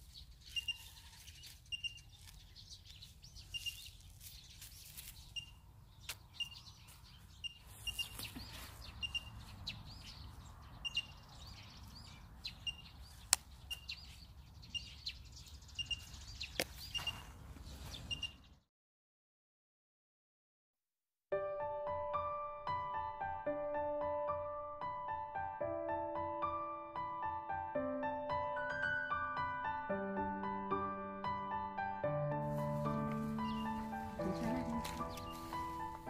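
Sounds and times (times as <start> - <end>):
plant stems rustling: 0.0 - 9.6, 32.4 - 36.0
small bird chirping: 0.0 - 18.6, 33.3 - 36.0.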